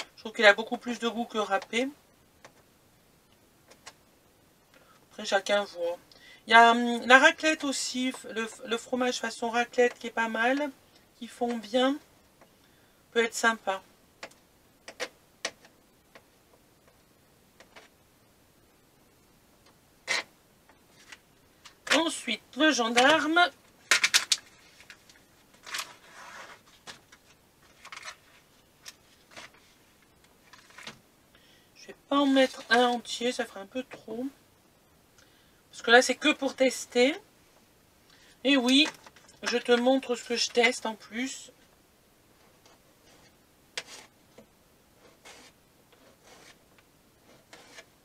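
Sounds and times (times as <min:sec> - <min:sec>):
plastic packaging rustling: 0:23.0 - 0:31.0.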